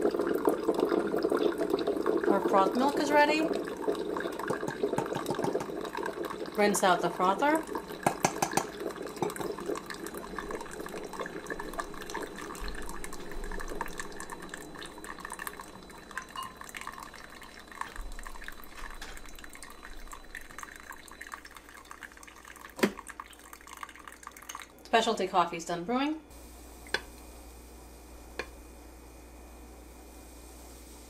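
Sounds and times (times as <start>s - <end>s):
coffee dripping into glass cup: 0.3s - 24.9s.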